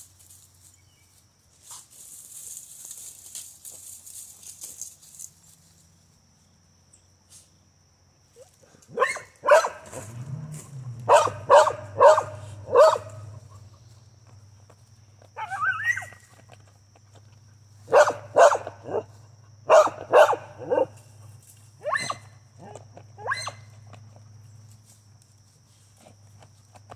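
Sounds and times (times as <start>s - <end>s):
dogs barking: 8.9s - 13.9s, 17.8s - 21.0s
dog whining: 15.4s - 16.2s.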